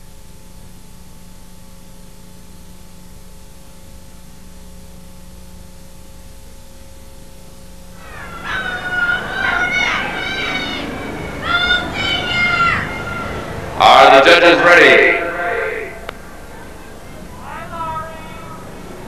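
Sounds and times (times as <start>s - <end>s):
tape electrical hum and hiss: 0.0s - 19.0s
high wavering pitches: 8.0s - 17.6s.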